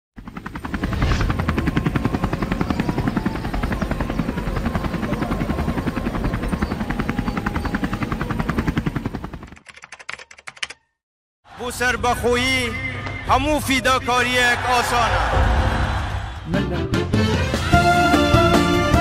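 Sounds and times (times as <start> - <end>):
helicopter rotor blades beating: 0.2 - 9.7.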